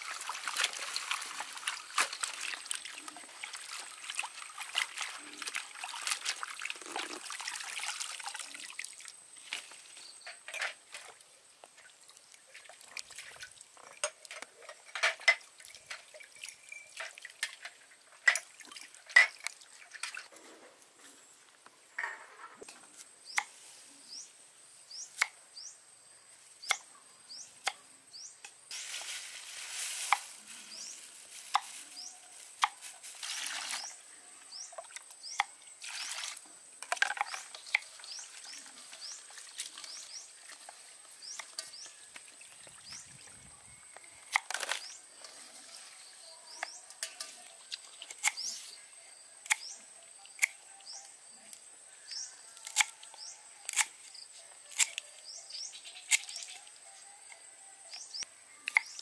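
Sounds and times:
liquid pouring splashes: 0.0 - 9.1
faint high chirps: 15.7 - 17.2.

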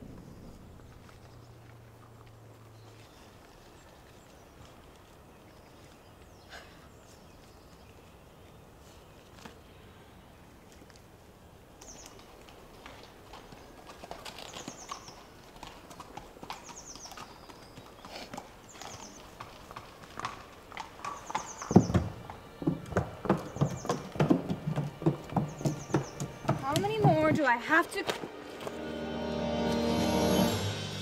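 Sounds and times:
horse hooves clip-clopping: 0.0 - 6.4, 10.7 - 28.9.

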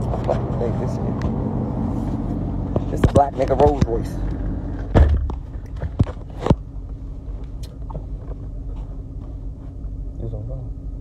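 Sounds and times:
low car cabin rumble: 0.0 - 11.0
thump: 4.9 - 5.5.

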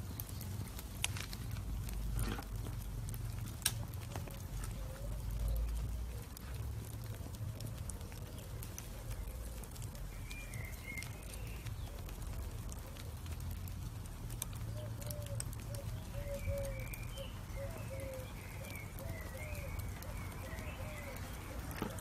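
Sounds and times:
charcoal embers crackling: 0.0 - 22.0
birds calling: 3.9 - 6.4, 7.8 - 13.6, 14.5 - 22.0.

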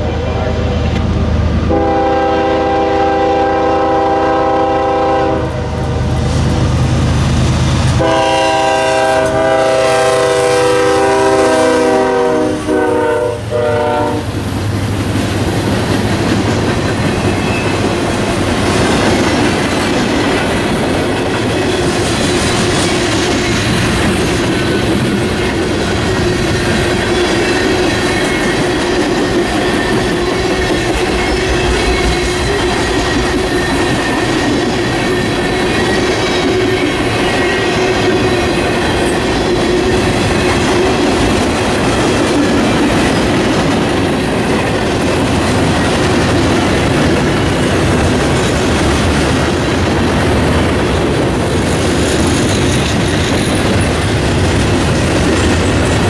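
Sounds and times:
train horn blasts: 1.7 - 6.2, 8.0 - 14.4
train wheels clattering on rails: 6.4 - 56.0.

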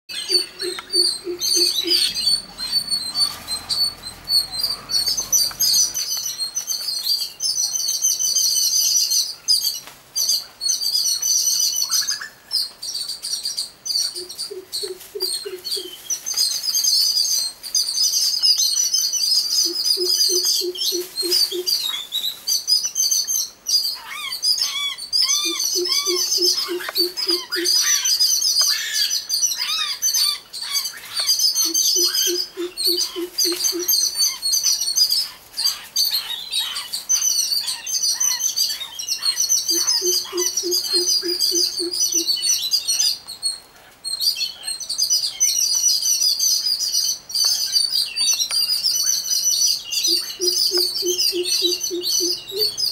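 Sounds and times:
garden birds chirping: 0.0 - 52.9
short rising-and-falling bird calls: 0.1 - 6.4.

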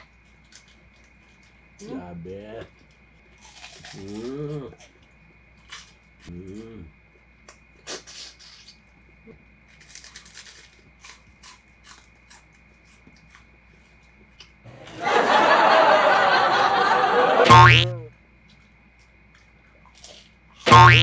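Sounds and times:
laugh track: 14.7 - 18.1.

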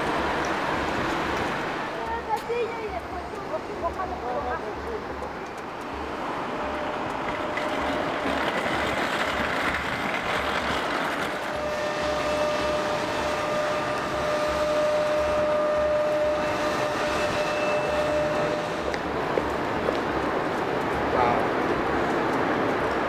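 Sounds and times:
passing vehicles rumble: 0.0 - 23.0
engine-like whine: 11.5 - 19.1.

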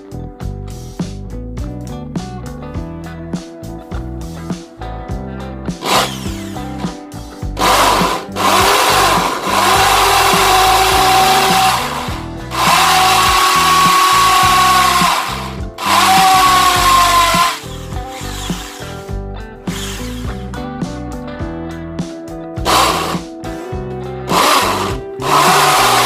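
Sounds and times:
electric drill boring into masonry: 5.8 - 6.9, 7.6 - 19.1, 19.7 - 20.4, 22.6 - 23.2, 24.3 - 26.0.

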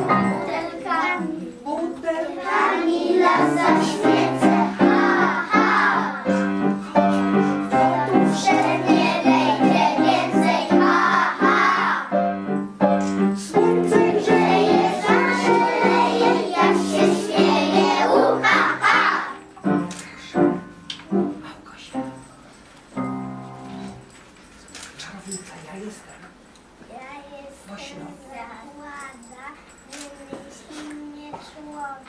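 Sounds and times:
children singing: 0.0 - 12.2, 13.4 - 19.5
piano accompaniment: 0.0 - 24.3.

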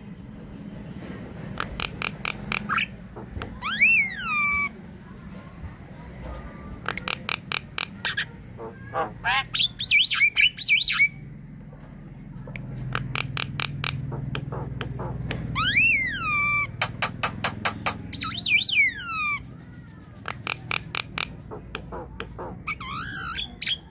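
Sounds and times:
bird whistled notes: 15.6 - 16.9, 18.0 - 19.4.

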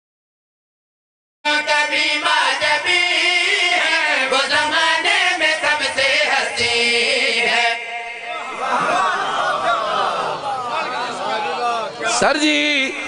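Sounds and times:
men singing devotional chant: 1.5 - 10.0.

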